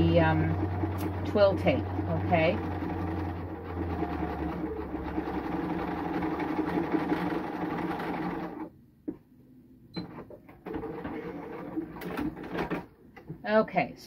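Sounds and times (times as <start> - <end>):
sewing machine running: 0.0 - 8.7, 10.6 - 12.9.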